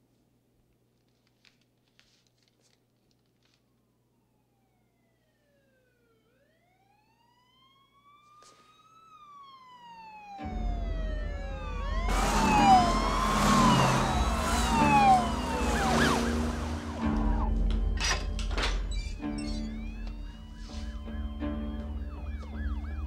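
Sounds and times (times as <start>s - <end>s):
police sirens wailing: 4.3s - 23.0s
car engines and tyres: 10.4s - 23.0s.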